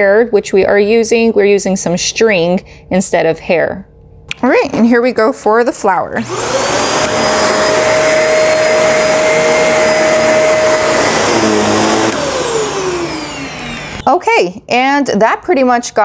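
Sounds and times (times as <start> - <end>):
vacuum cleaner motor whine: 6.2 - 14.1.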